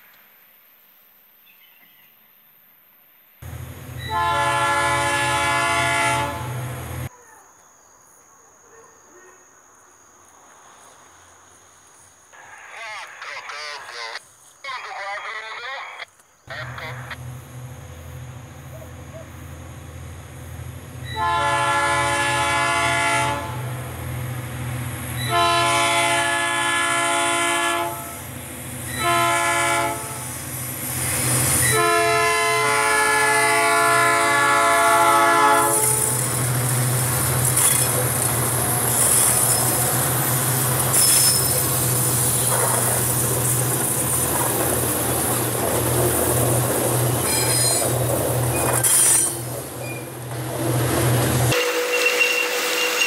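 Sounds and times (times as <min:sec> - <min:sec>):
locomotive engines rumbling: 0:03.4 - 0:07.1, 0:14.8 - 0:53.0
locomotive air horn blasts: 0:04.0 - 0:06.8, 0:21.1 - 0:23.7, 0:25.2 - 0:28.3, 0:28.9 - 0:30.4, 0:31.6 - 0:36.2, 0:51.5 - 0:53.0
train wheels clattering and squealing: 0:37.3 - 0:53.0.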